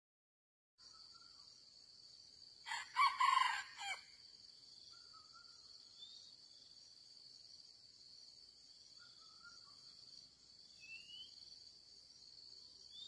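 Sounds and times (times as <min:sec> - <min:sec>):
insects droning: 0:00.8 - 0:13.0
rooster crowing: 0:02.6 - 0:04.2.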